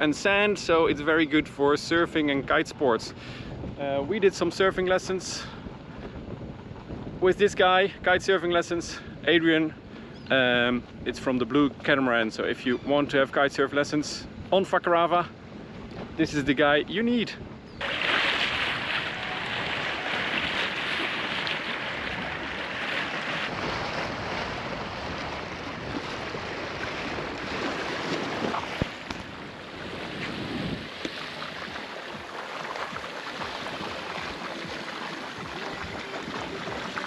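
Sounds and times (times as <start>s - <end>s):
water rushing along hull: 0.0s - 9.0s, 17.8s - 37.0s
wind buffeting microphone: 0.0s - 11.9s, 17.3s - 37.0s.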